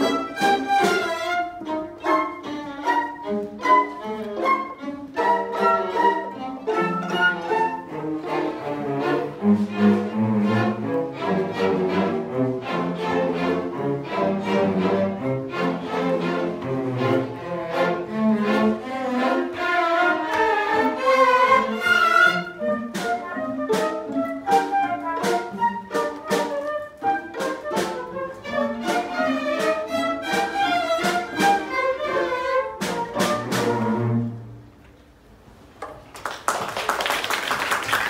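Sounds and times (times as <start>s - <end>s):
string orchestra playing: 0.0s - 35.1s
applause: 35.9s - 38.0s.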